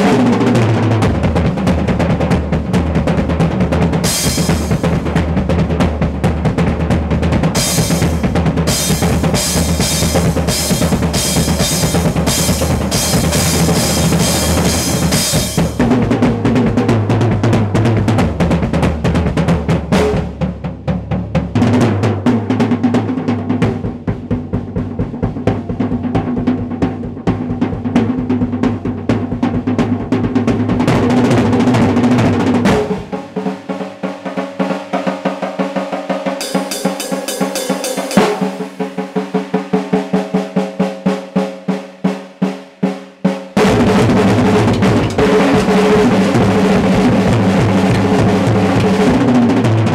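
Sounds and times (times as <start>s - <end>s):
bass drum: 0.0s - 33.6s, 36.4s - 41.6s, 42.9s - 49.9s
snare and tom rolls: 0.0s - 49.9s
cymbals crashing: 7.6s - 15.8s, 36.4s - 41.1s.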